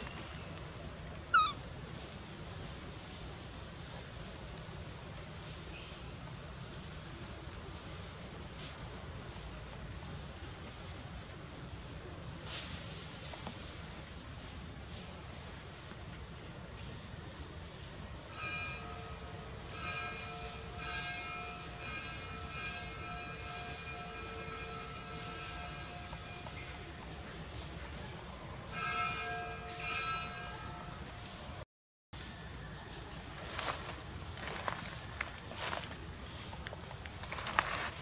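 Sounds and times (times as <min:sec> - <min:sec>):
high-pitched insect drone: 0:00.0 - 0:07.2
sharp animal squeak: 0:01.3 - 0:01.6.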